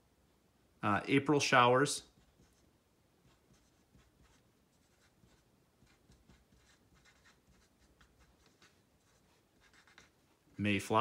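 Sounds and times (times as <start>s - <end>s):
marker writing on whiteboard: 2.0s - 10.4s.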